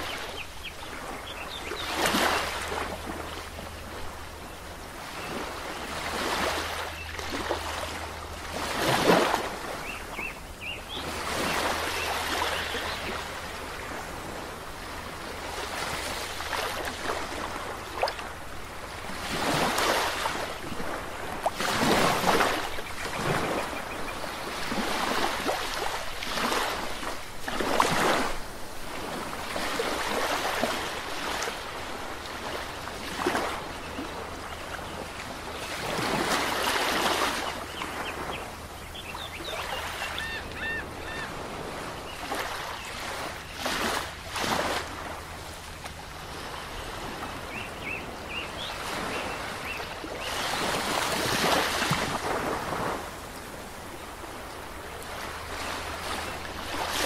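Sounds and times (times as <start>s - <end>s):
small waves breaking on beach: 0.0s - 57.0s
faint bird chirps: 37.4s - 41.3s.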